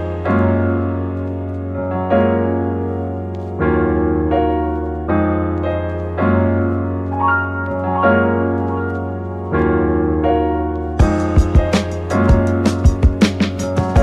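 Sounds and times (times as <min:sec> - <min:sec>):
lo-fi hip-hop music: 0:00.0 - 0:14.0
mellow piano chords: 0:00.0 - 0:14.0
drum beat: 0:11.0 - 0:14.0.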